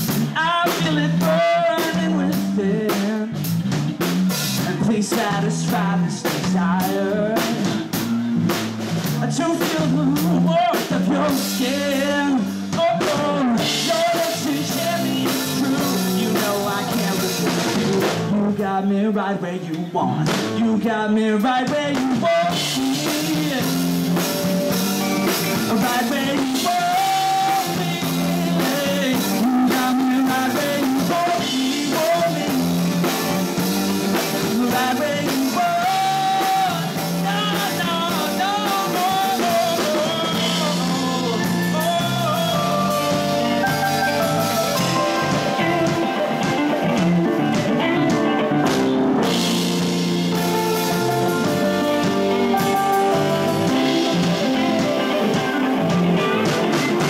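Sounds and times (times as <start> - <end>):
rock band playing: 0.0 - 19.4, 20.0 - 57.0
lead guitar bent notes: 13.6 - 18.4, 22.6 - 30.2, 39.8 - 57.0.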